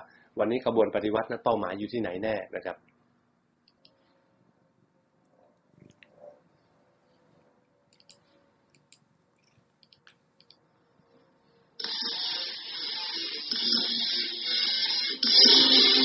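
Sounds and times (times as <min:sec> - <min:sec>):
faint clicks: 0:06.9 - 0:10.6
loud music: 0:11.8 - 0:16.0.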